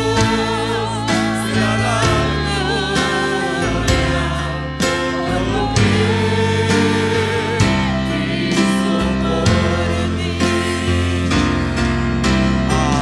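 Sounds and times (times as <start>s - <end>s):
worship song with instruments: 0.0s - 13.0s.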